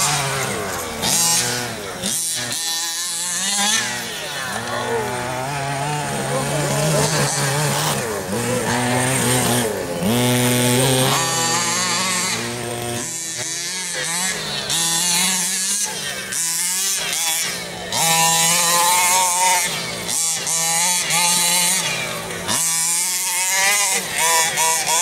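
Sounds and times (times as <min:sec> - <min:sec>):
two-stroke engine revving: 0:00.0 - 0:25.0.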